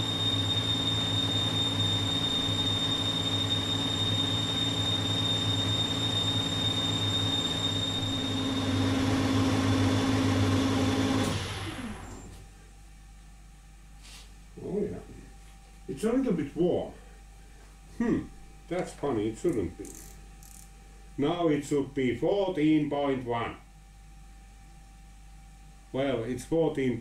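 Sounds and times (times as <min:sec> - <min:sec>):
lathe motor and spindle hum: 0:00.0 - 0:12.4
lathe tool whistling in cut: 0:00.0 - 0:12.4.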